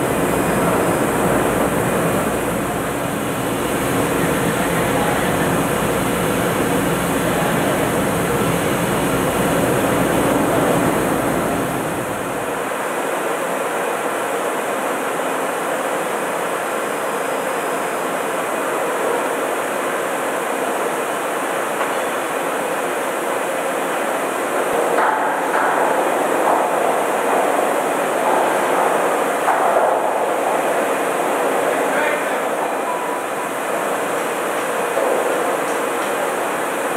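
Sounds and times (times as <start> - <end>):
loud machinery noise: 0.0 - 12.9, 20.9 - 36.9.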